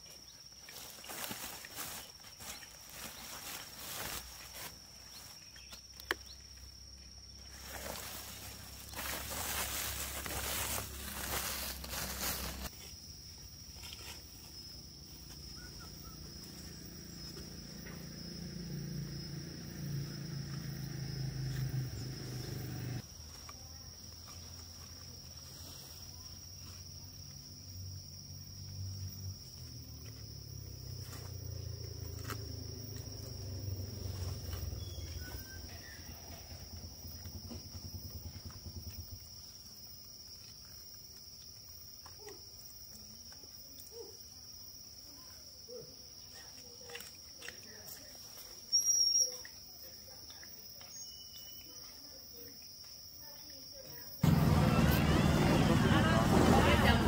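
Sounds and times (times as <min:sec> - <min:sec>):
rustling noise: 0:00.7 - 0:05.6, 0:07.4 - 0:13.0
high-pitched insect drone: 0:13.9 - 0:23.0.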